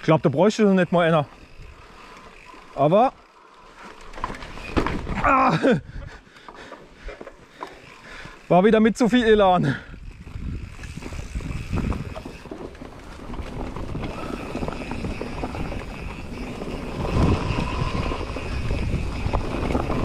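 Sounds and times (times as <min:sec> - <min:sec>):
bike tyres rolling over leaves: 0:00.0 - 0:05.8, 0:06.4 - 0:20.0
bike rattling over bumps: 0:00.0 - 0:20.0
wind rumbling on microphone: 0:09.2 - 0:20.0.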